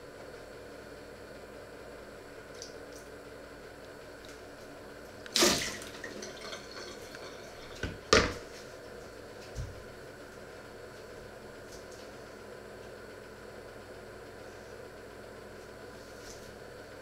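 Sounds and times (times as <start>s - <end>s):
steady low hum: 0.0s - 17.0s
tap water splashing in sink: 5.3s - 8.4s
kitchenware knocking in sink: 7.6s - 8.4s.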